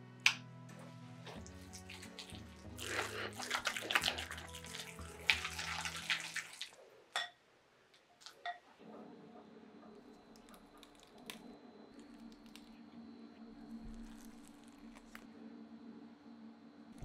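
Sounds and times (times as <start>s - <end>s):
spatula squishing egg salad: 1.4s - 6.8s.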